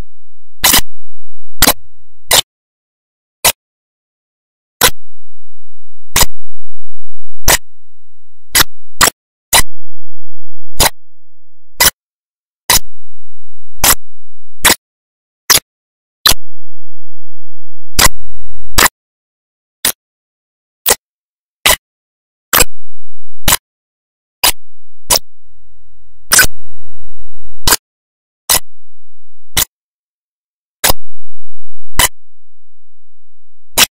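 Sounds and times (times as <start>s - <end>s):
sharp isolated clicks: 6.2s - 6.4s, 7.4s - 7.7s, 8.6s - 9.7s, 18.0s - 18.9s, 30.8s - 31.1s.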